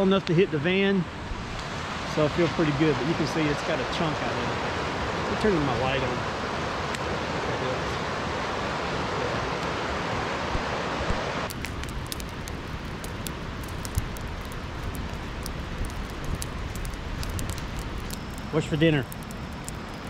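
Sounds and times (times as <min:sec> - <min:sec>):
creek water rushing: 0:01.1 - 0:20.0
campfire crackling and popping: 0:06.8 - 0:07.1, 0:09.5 - 0:20.0.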